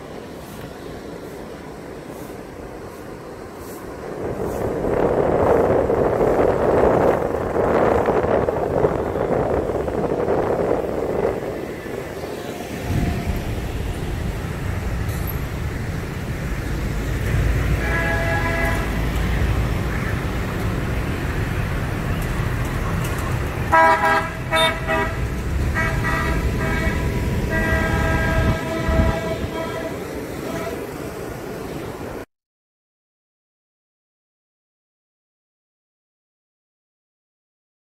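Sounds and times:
low road rumble: 0.0 - 32.3
vehicle horns honking: 17.7 - 19.2, 23.6 - 31.2.

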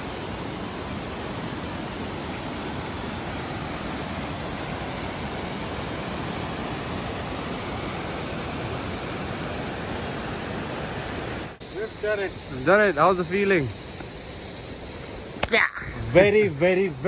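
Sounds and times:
fast-flowing river rushing: 0.0 - 11.6.

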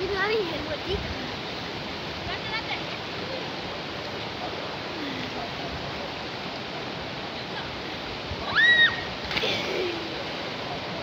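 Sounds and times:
river water rushing: 0.0 - 11.0
splash in water: 8.6 - 10.5.

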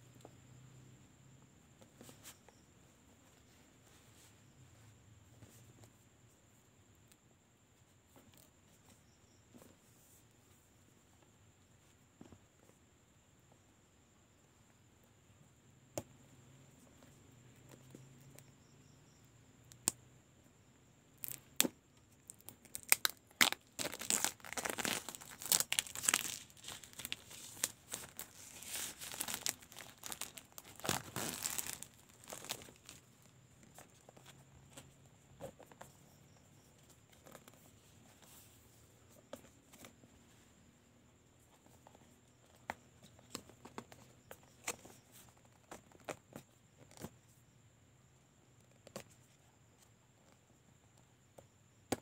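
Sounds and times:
plastic shrink wrap crinkling: 22.3 - 33.0.

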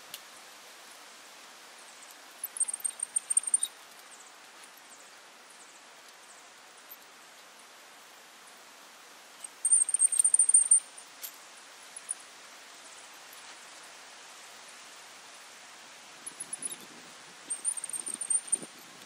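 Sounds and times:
outdoor hiss: 0.0 - 19.0
tie-wire twister squeaky ticking: 2.4 - 3.8, 9.4 - 11.4, 16.3 - 18.8.

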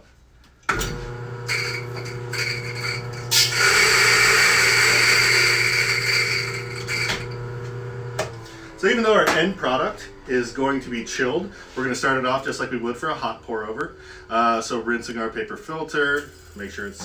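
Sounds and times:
coffee grinder motor humming: 0.7 - 9.0
beans grinding: 1.1 - 8.6.

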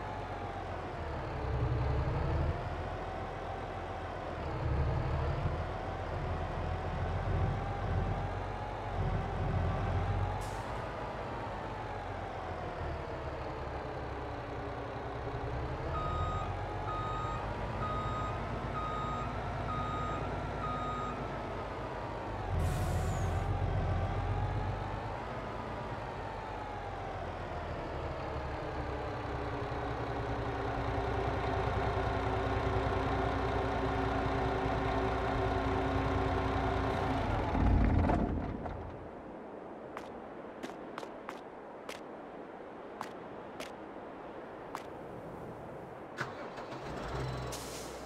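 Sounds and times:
truck diesel engine: 0.0 - 39.2, 46.1 - 48.0
reversing alarm beeping: 15.9 - 21.3
air brakes hissing: 22.6 - 23.5, 46.3 - 48.0.

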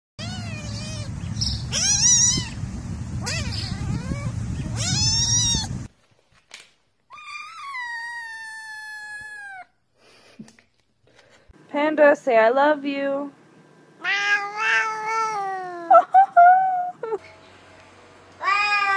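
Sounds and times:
cat meowing: 0.2 - 2.6, 3.2 - 5.8, 7.1 - 9.7, 14.0 - 15.9, 18.4 - 18.9
kitten mewing: 0.2 - 2.6, 3.2 - 5.9, 7.1 - 9.7, 14.0 - 15.9
low rumble: 0.2 - 5.9.

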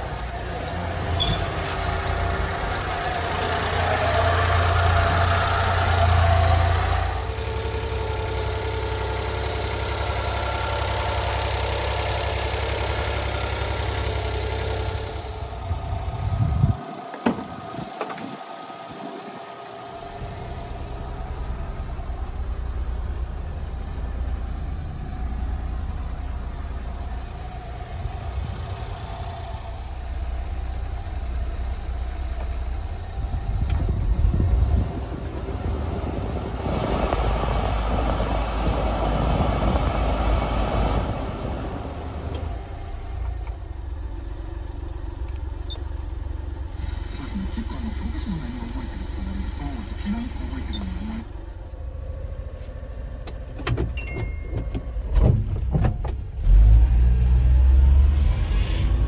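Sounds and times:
small engine idling: 0.0 - 35.7, 41.8 - 55.1
car door latch clicking: 17.1 - 18.3.

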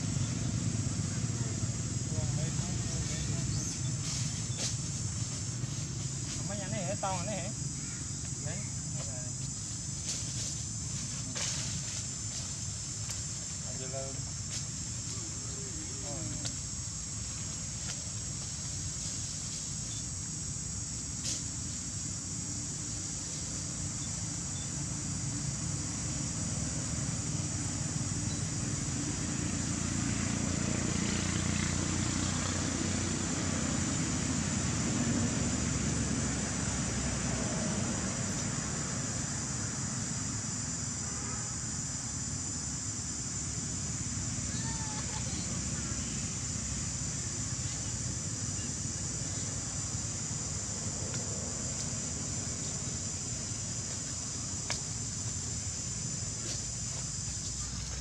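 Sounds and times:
high even hiss: 0.0 - 34.4
insect chorus drone: 0.0 - 58.0.

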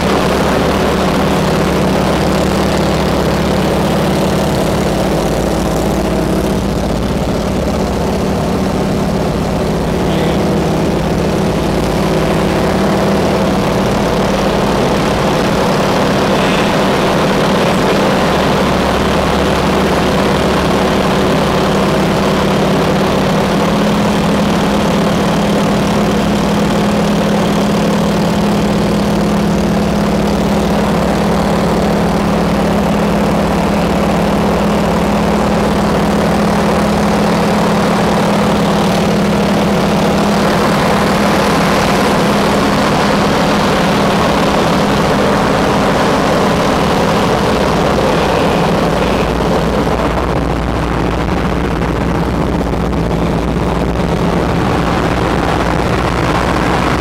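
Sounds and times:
propeller engine droning: 0.0 - 57.0.

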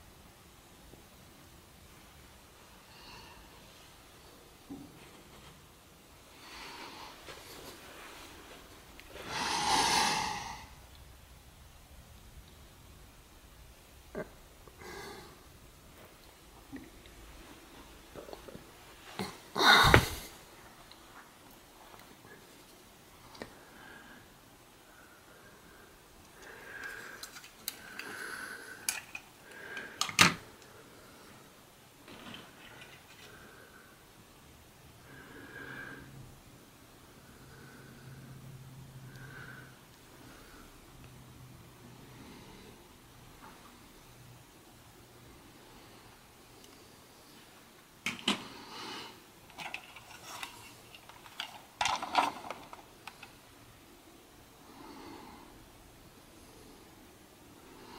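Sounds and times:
plastic toy bricks clicking: 28.8 - 30.4, 49.5 - 53.3.

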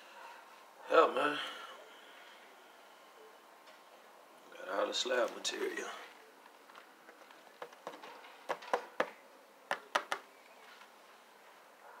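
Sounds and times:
fingers tapping foil tape: 7.1 - 10.2.

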